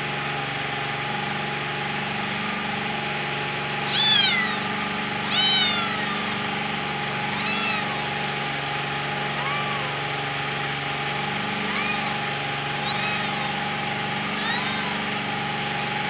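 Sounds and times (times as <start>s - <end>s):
mechanical hum: 0.0s - 16.0s
kitten meowing: 3.8s - 6.5s, 7.2s - 8.2s, 9.3s - 10.1s, 11.5s - 15.1s.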